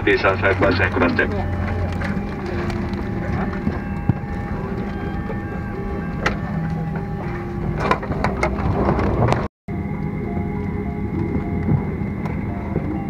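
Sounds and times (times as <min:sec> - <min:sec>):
murmur of passengers: 0:00.0 - 0:08.8
airliner cabin hum: 0:00.0 - 0:13.0.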